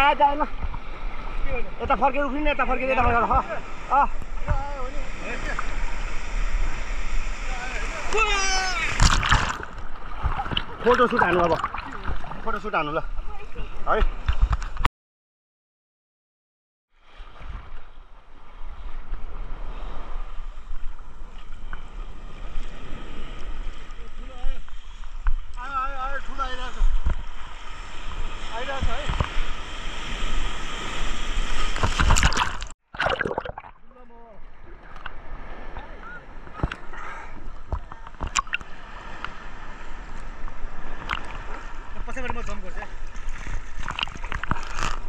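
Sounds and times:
sea surf splashing: 0.0 - 14.8, 17.0 - 45.0
short sharp splashes: 8.7 - 12.5, 30.5 - 33.9, 43.1 - 45.0.

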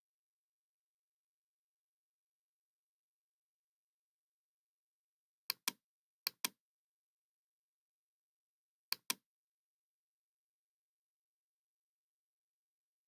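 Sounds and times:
computer mouse clicking: 5.5 - 6.6, 8.9 - 9.2.

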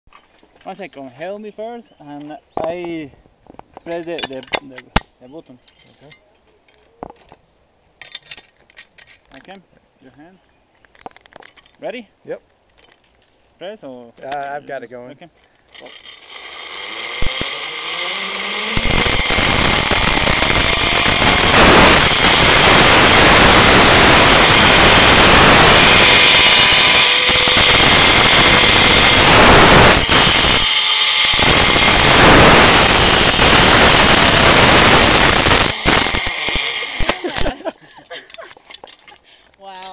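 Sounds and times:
pulley whirring on cable: 15.7 - 22.7.

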